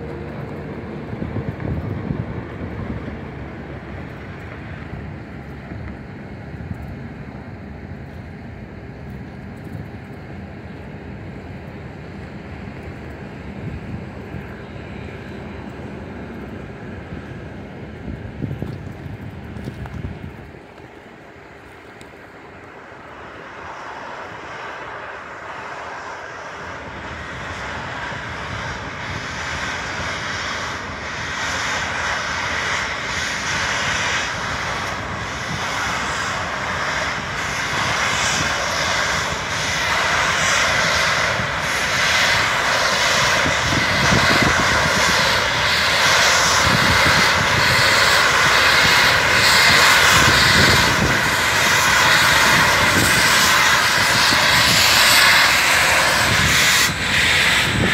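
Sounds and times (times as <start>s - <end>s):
steam locomotive approaching: 20.7s - 57.9s.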